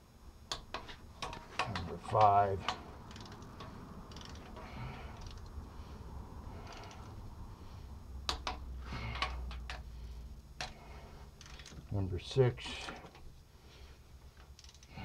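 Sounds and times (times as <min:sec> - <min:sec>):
torque wrench clicking: 0:00.5 - 0:05.6, 0:14.5 - 0:15.0.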